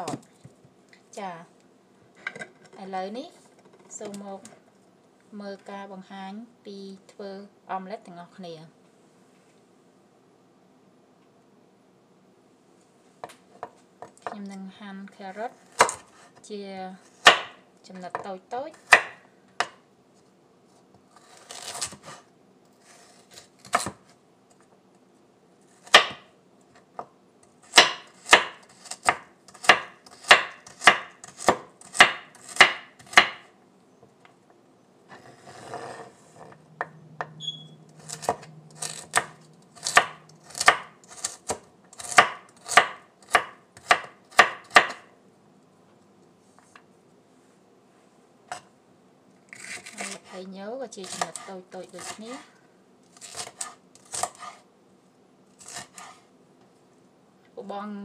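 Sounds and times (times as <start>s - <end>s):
knife chopping on wooden board: 15.7s - 16.1s, 17.2s - 19.8s, 23.6s - 24.0s, 25.8s - 26.3s, 27.7s - 33.5s, 38.0s - 45.1s, 51.0s - 52.2s.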